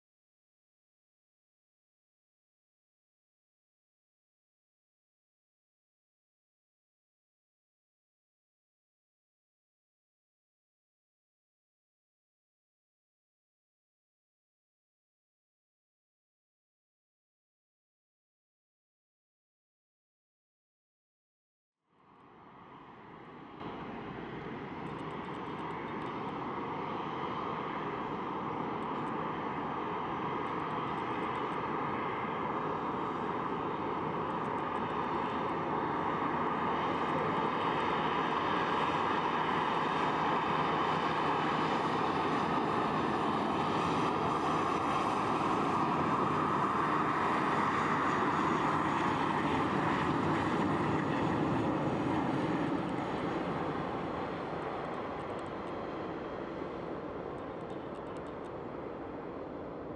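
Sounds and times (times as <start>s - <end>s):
jet engines humming at taxi power: 21.9s - 59.9s.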